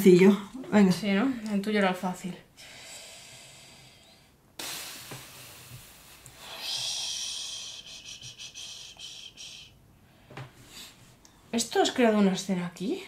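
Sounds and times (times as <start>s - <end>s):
person breathing out: 2.6s - 11.0s.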